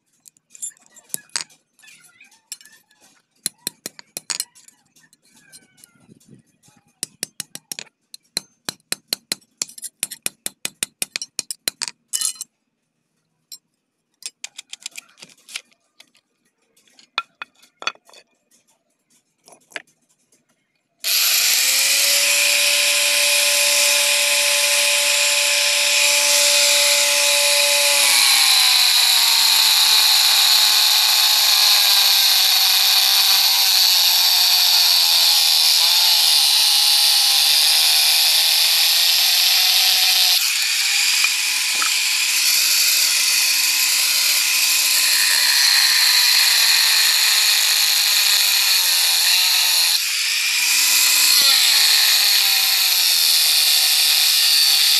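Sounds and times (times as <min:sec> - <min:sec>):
knife blade clinking on steel: 0:11.2 - 0:12.5
angle grinder cutting: 0:21.0 - 0:54.9.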